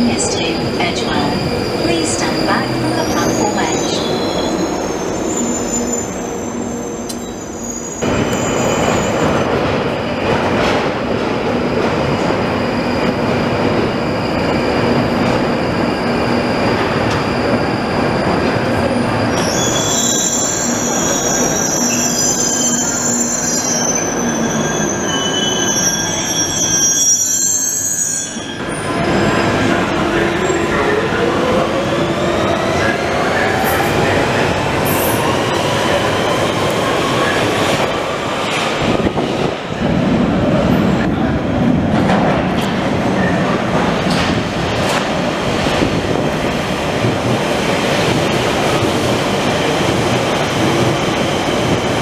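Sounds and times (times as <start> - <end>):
train wheels rumbling on rails: 8.0 - 25.2, 28.8 - 52.0
high-pitched wheel squeal: 19.3 - 28.9.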